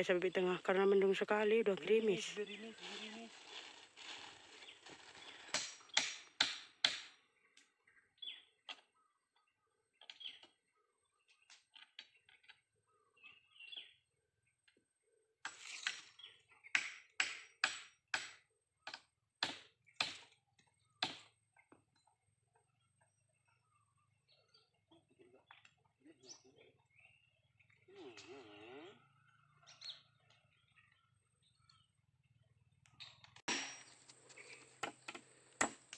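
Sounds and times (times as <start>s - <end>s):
hammer striking wood: 5.5s - 7.1s, 16.7s - 18.4s, 19.4s - 20.2s, 33.5s - 33.9s, 34.8s - 35.8s
faint bird chirps: 7.3s - 16.8s, 21.9s - 35.2s.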